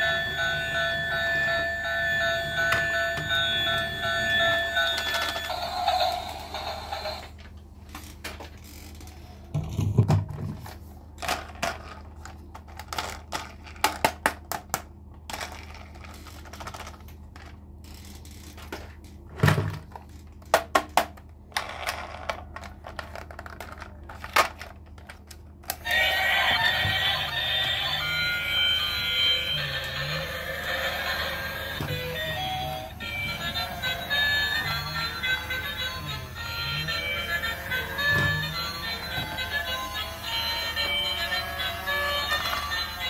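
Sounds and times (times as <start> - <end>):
toy electronic tune: 0.0 - 7.3, 25.8 - 43.0.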